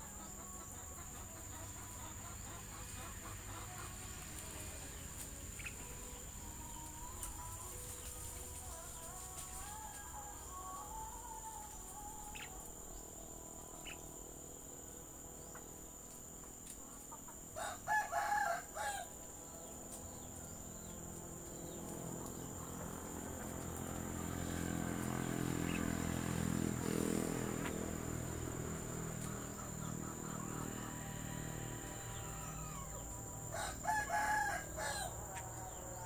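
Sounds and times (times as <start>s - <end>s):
rooster crowing: 17.5s - 21.0s, 28.6s - 36.0s.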